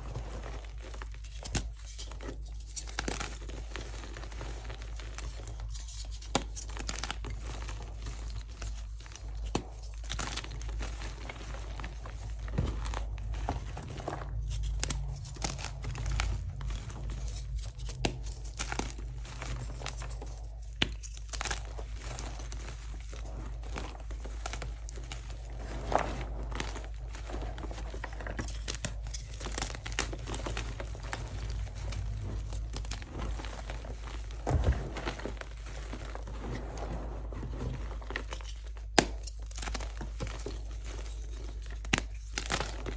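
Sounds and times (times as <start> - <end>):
chalk crumbling by hand: 0.0 - 42.9
chalk chunks snapping: 12.4 - 22.8, 38.4 - 42.9.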